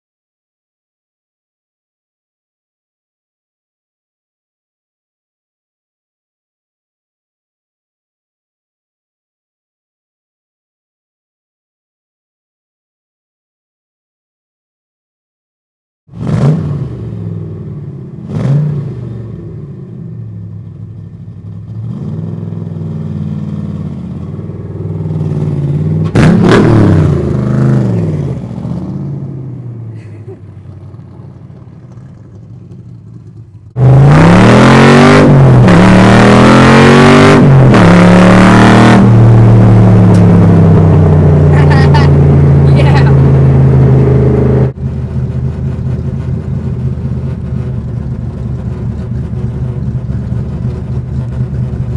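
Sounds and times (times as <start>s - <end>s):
car engine revving: 16.1s - 51.9s.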